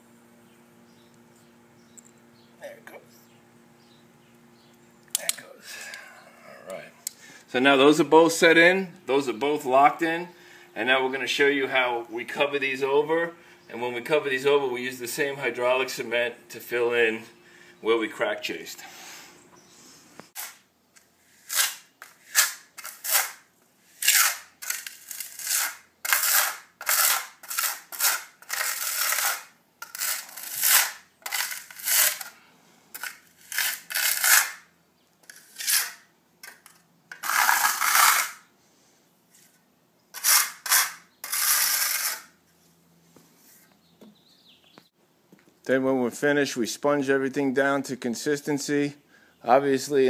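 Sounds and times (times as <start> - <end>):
steel trowel scraping concrete: 20.3 - 20.6, 21.2 - 38.5, 39.4 - 42.4.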